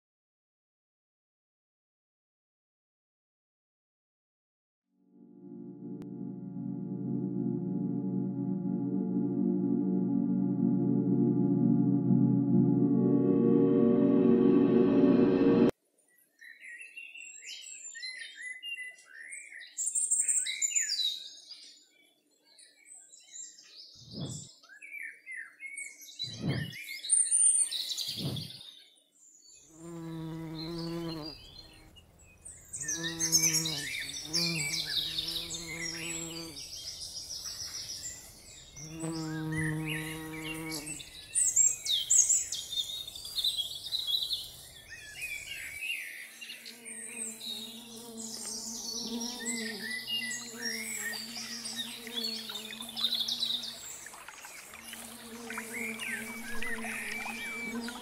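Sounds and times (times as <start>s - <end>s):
wavering low drone: 5.2s - 15.7s
low sustained tone: 5.3s - 15.7s.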